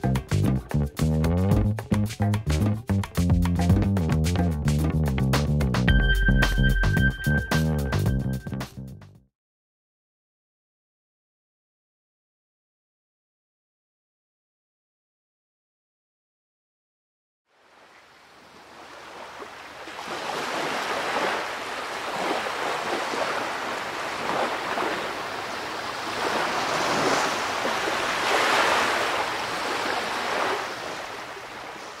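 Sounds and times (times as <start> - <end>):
ocean waves washing in: 17.5 - 32.0.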